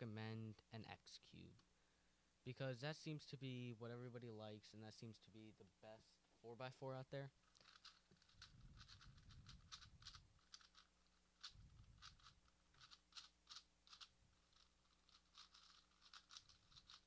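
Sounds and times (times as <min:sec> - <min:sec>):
puzzle cube clicking: 0:07.4 - 0:17.0.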